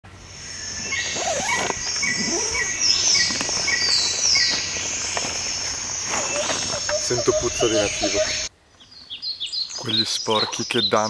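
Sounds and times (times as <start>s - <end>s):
insects chirring: 0.2s - 8.5s
bird chirping: 0.2s - 11.0s
gliding bird calls: 0.3s - 10.2s.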